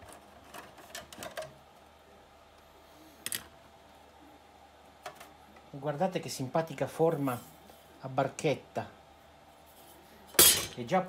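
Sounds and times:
light metal handling: 10.3 - 10.8.

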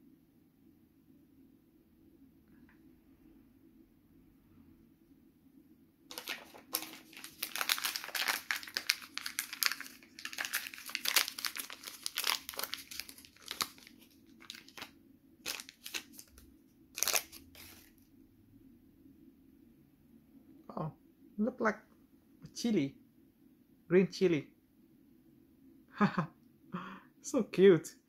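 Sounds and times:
plastic packet crinkling: 6.1 - 17.9.

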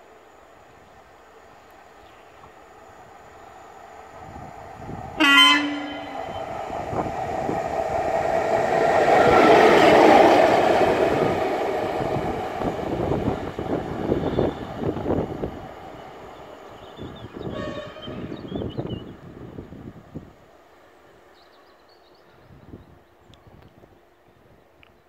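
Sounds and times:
train wheels rumbling on rails: 1.6 - 20.4
locomotive horn blast: 5.2 - 6.5, 17.4 - 18.4.

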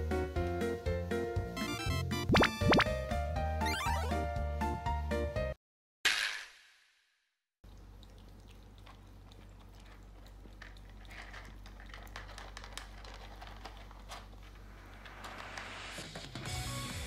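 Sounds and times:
kittens crunching dry kibble: 7.7 - 15.4.

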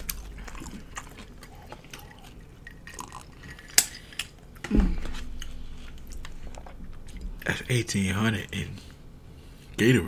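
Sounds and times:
wet mouth eating sounds: 0.0 - 7.5.

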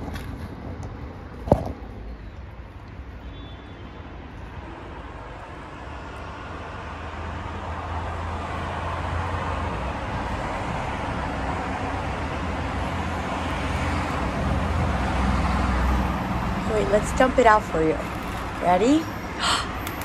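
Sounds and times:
street traffic rumble: 0.0 - 20.0.

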